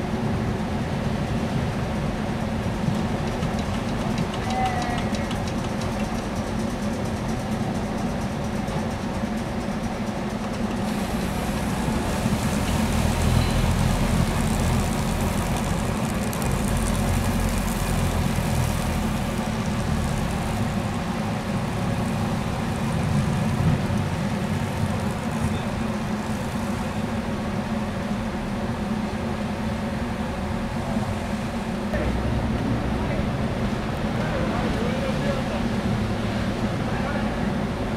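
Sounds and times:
broom rotor whirring and brushing snow: 0:05.5 - 0:31.9.

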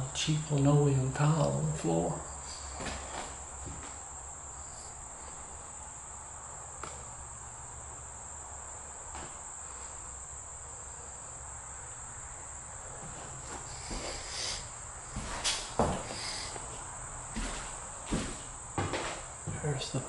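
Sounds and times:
high-pitched insect chorus: 0:00.0 - 0:20.0.

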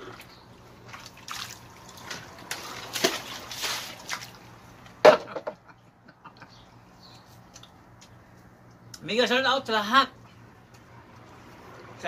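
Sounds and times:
water splashing and sloshing: 0:00.0 - 0:05.1.

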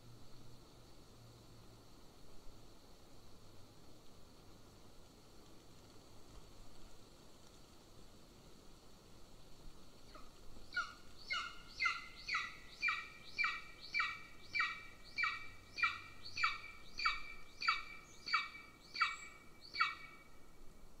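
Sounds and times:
eagle yelping: 0:10.7 - 0:20.2.

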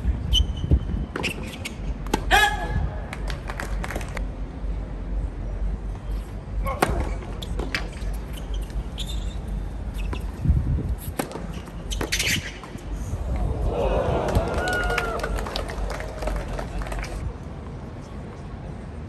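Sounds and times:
murmur of spectators: 0:13.1 - 0:19.0.

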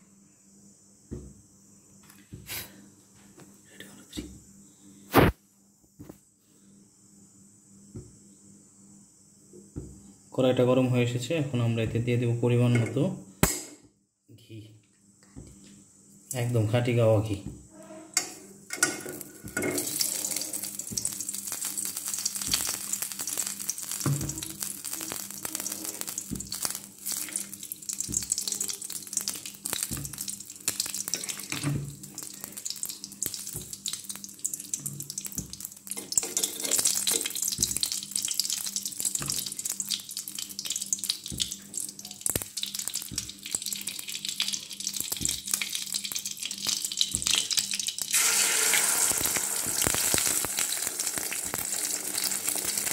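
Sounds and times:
egg frying in hot fat: 0:05.1 - 0:05.4, 0:18.2 - 0:52.9
ghee sizzling and crackling: 0:15.4 - 0:52.9.

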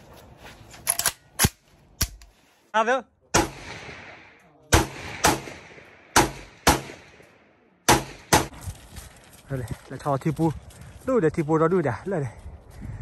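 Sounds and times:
gunshots with echo: 0:03.4 - 0:08.5.

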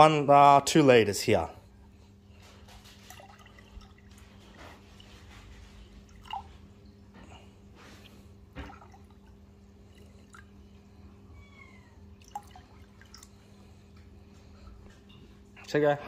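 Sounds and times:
steady low hum: 0:00.0 - 0:16.0
dripping: 0:02.3 - 0:07.3, 0:08.0 - 0:11.1, 0:12.0 - 0:14.4
liquid pouring into plastic jug: 0:02.6 - 0:05.1, 0:06.0 - 0:06.7, 0:08.1 - 0:10.8, 0:12.1 - 0:13.7.

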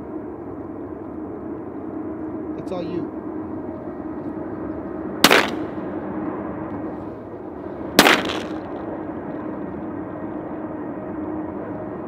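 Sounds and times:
shotgun shots with echo: 0:05.2 - 0:05.7, 0:08.0 - 0:08.6.

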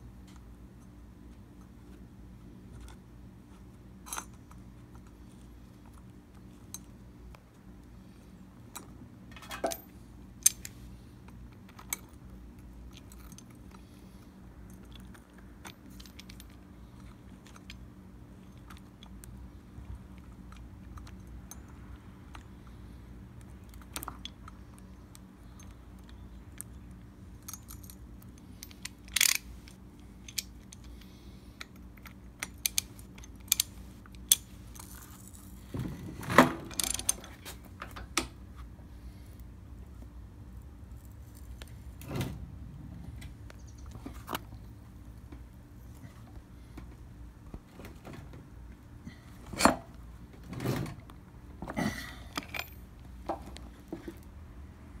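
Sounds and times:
faint steady hum: 0:00.0 - 0:55.0
ratchet and blade clinking: 0:32.4 - 0:35.6.

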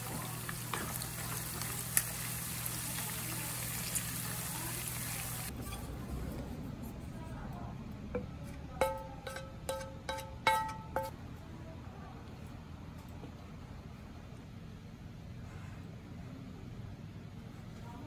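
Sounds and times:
food sizzling in frying pan: 0:00.0 - 0:05.5.

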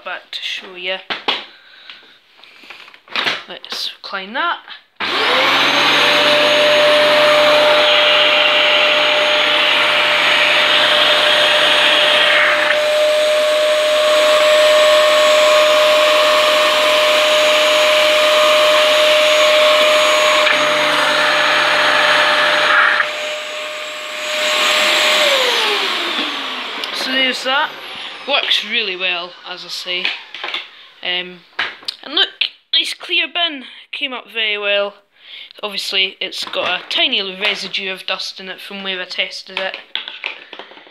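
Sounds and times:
vacuum cleaner running: 0:05.0 - 0:31.2.

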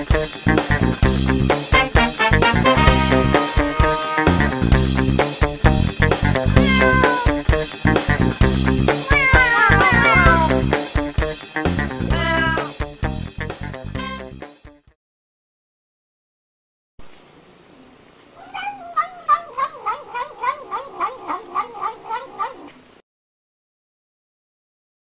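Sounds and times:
background music with steady beat: 0:00.0 - 0:09.1, 0:09.8 - 0:14.9
cat meowing: 0:06.6 - 0:07.4, 0:09.0 - 0:10.6, 0:12.1 - 0:12.8, 0:18.4 - 0:22.8.

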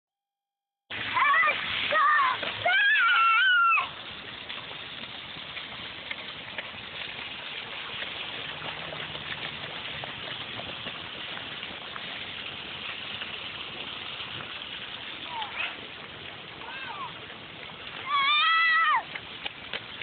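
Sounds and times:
steady rain on wet street: 0:00.9 - 0:20.0
water running along gutter: 0:00.9 - 0:20.0
child squealing: 0:01.2 - 0:03.9, 0:18.0 - 0:19.0
boots splashing in water: 0:04.5 - 0:15.8, 0:16.6 - 0:20.0.

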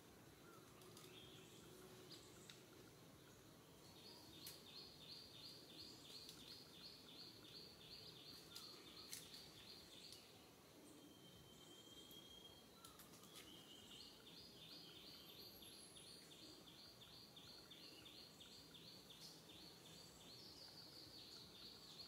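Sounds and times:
faint high chirping: 0:00.0 - 0:22.0
faint clicks: 0:00.5 - 0:02.8, 0:04.3 - 0:04.7, 0:06.1 - 0:06.7, 0:08.3 - 0:10.3, 0:12.8 - 0:13.6.

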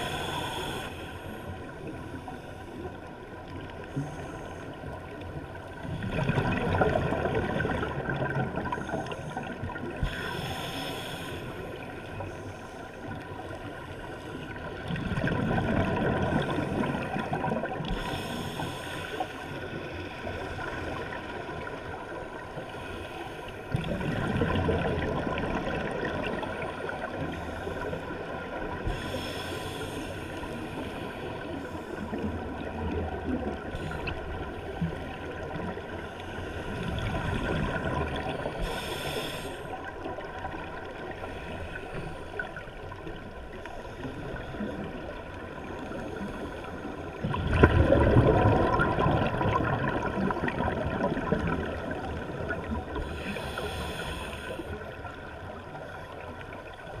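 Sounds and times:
underwater noise: 0:00.0 - 0:57.0
exhaled bubbles gurgling: 0:01.5 - 0:57.0
regulator inhalation hisses: 0:38.6 - 0:39.6, 0:53.2 - 0:54.6.

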